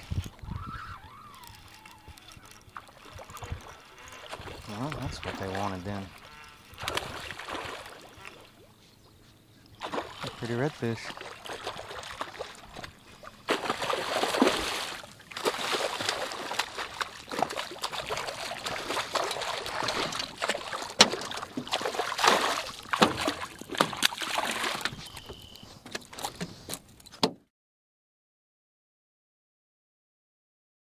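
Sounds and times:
fish splashing in water: 0:00.5 - 0:08.8, 0:09.8 - 0:26.4
sharp water slaps: 0:06.8 - 0:08.4, 0:09.8 - 0:24.9.

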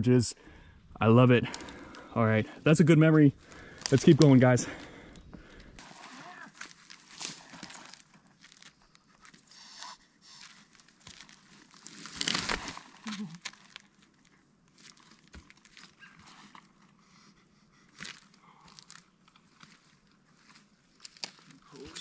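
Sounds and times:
footsteps crunching on a trail: 0:02.9 - 0:05.8, 0:06.5 - 0:09.5, 0:10.3 - 0:12.6, 0:18.0 - 0:22.0.

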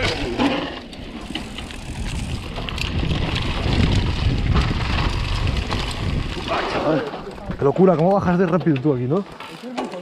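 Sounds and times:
bike rattling on dirt trail: 0:00.0 - 0:10.0
wind buffeting a microphone: 0:01.5 - 0:08.5.

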